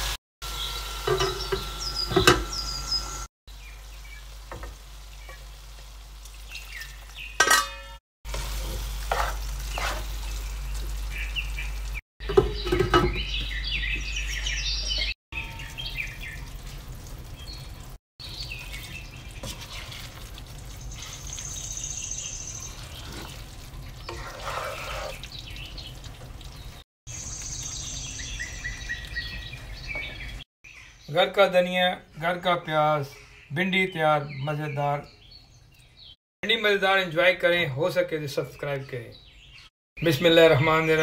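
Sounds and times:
food sizzling in a wok: 0:00.0 - 0:07.6, 0:08.3 - 0:12.0, 0:18.6 - 0:25.2
birds chirping: 0:00.4 - 0:08.0, 0:09.4 - 0:41.0
spatula stirring and scraping: 0:08.3 - 0:10.4, 0:18.6 - 0:21.6, 0:22.2 - 0:26.4.

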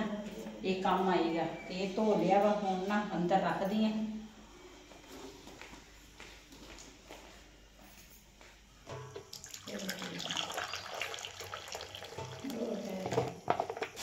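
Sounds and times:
tea pouring into bowl: 0:09.3 - 0:13.3.

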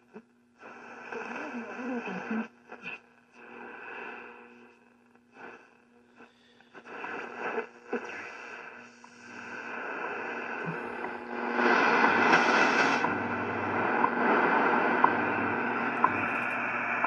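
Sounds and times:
shortwave radio static: 0:00.0 - 0:17.0.

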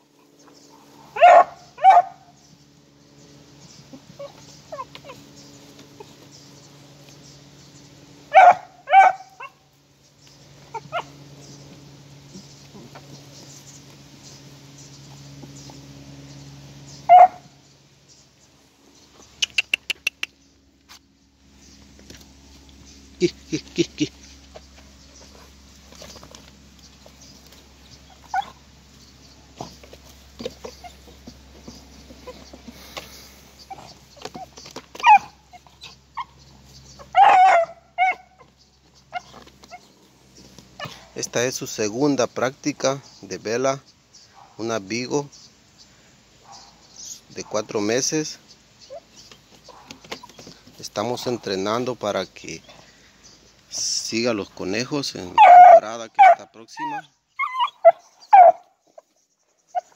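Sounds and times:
puppy barking: 0:01.1 - 0:02.3, 0:08.3 - 0:09.6, 0:10.7 - 0:11.1, 0:17.1 - 0:17.5, 0:28.2 - 0:28.6, 0:33.7 - 0:35.6, 0:37.0 - 0:38.5, 0:46.4 - 0:46.8, 0:49.7 - 0:50.0, 0:55.3 - 0:58.7
puppy yipping: 0:01.2 - 0:02.3, 0:04.2 - 0:05.2, 0:08.3 - 0:09.6, 0:17.1 - 0:17.4, 0:28.2 - 0:28.6, 0:33.7 - 0:36.4, 0:37.0 - 0:38.5, 0:39.1 - 0:39.8, 0:55.3 - 0:59.0, 0:59.7 - 0:59.9
paws scuffling in dry leaves: 0:24.1 - 0:41.2.

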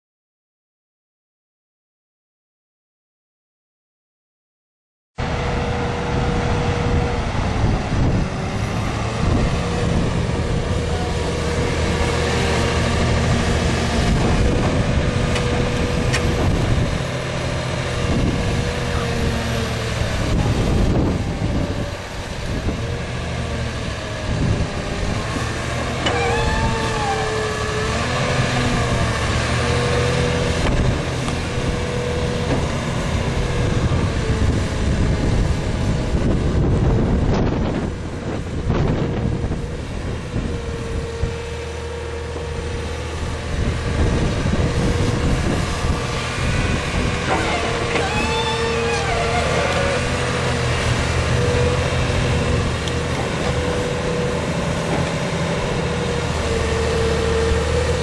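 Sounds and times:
excavator diesel engine under load: 0:05.2 - 0:58.0
whine bending in pitch: 0:25.9 - 0:29.1, 0:34.5 - 0:58.0.

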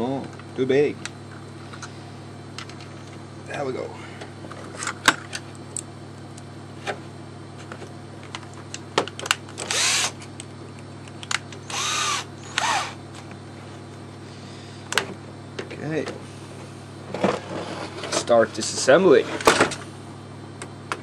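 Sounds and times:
drill motor running: 0:09.6 - 0:10.2, 0:11.6 - 0:13.0
drill sharp clicks: 0:09.6 - 0:10.2, 0:11.6 - 0:13.0.

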